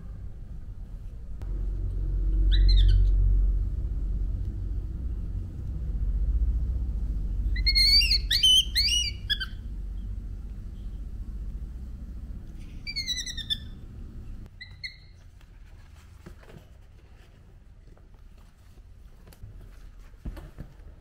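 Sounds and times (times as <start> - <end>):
low rumble: 0.0 - 14.5
baby monkey squeaky calls: 2.4 - 3.2, 7.6 - 9.7, 12.7 - 13.8, 14.6 - 15.2.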